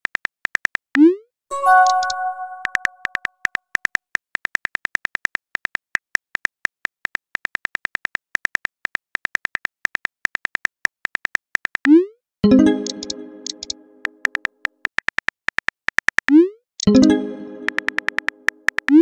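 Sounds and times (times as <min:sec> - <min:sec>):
smartphone keyboard typing clicks: 0:01.7 - 0:04.0, 0:12.8 - 0:16.2, 0:17.6 - 0:19.0.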